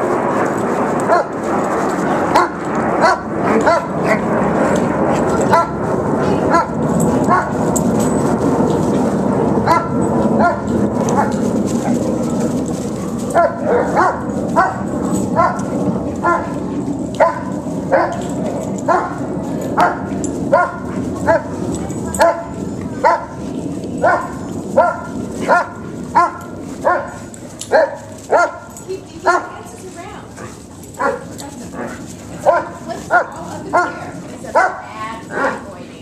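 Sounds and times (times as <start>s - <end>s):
dog barking: 2.3s - 4.2s, 5.5s - 5.8s, 9.7s - 11.4s, 13.3s - 14.8s, 15.4s - 16.6s, 17.2s - 18.2s, 18.9s - 19.2s, 19.8s - 21.5s, 22.2s - 23.4s, 24.0s - 29.6s, 31.0s - 31.3s, 32.4s - 34.0s, 34.6s - 35.6s.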